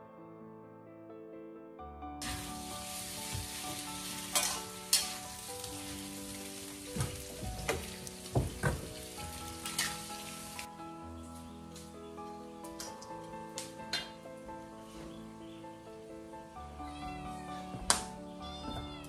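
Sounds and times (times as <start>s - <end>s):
meat sizzling in a wok: 2.2s - 10.7s
metal ladle scraping wok: 3.8s - 6.1s, 9.6s - 10.2s.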